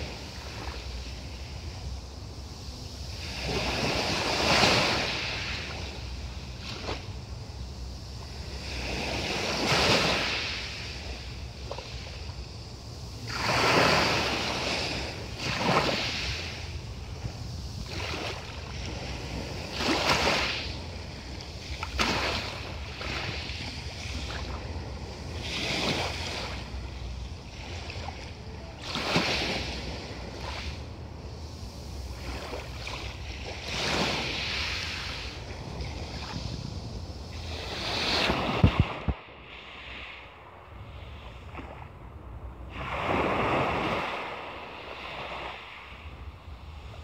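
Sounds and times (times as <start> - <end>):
waves washing over pebbles: 3.0 - 40.4
steady low rumble: 10.3 - 15.6, 16.2 - 19.9, 20.6 - 28.9, 29.6 - 33.7.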